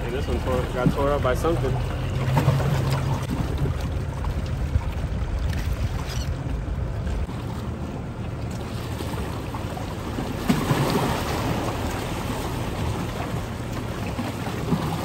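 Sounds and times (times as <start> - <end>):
waves washing on shore: 7.2 - 15.0.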